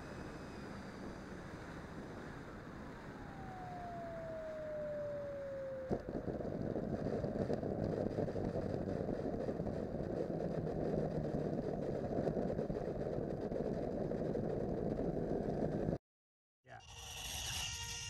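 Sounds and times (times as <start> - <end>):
electric ducted fan whine: 0.0 - 16.0
landing gear rolling on asphalt: 0.0 - 16.0.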